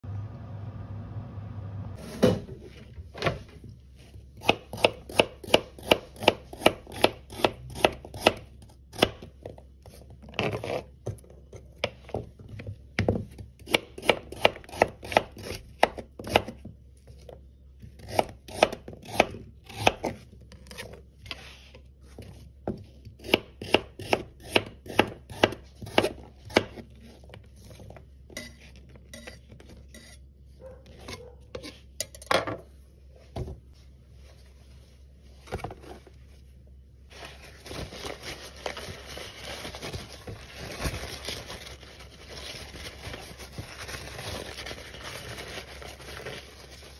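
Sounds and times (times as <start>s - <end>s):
knife slicing carrots on board: 4.4s - 9.3s, 13.6s - 16.6s, 23.1s - 27.2s.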